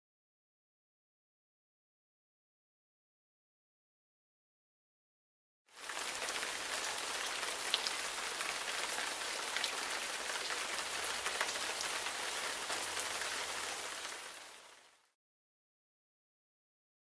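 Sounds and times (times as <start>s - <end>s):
steady rain hiss: 5.7s - 15.2s.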